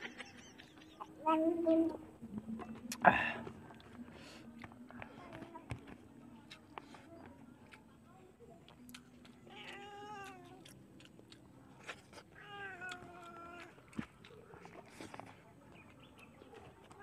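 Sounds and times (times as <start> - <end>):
faint clicks and taps: 4.6 - 7.8
cat meowing: 9.5 - 10.6, 12.4 - 13.7.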